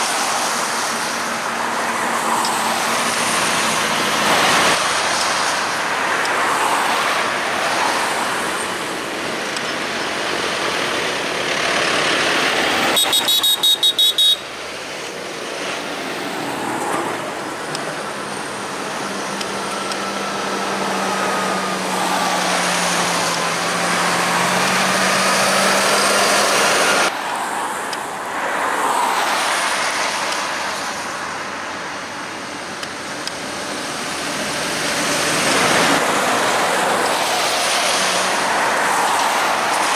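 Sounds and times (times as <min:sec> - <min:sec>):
tractor diesel engines droning: 0:00.0 - 0:39.9
tyre noise on road: 0:00.0 - 0:39.9
horn tooting: 0:12.9 - 0:14.5.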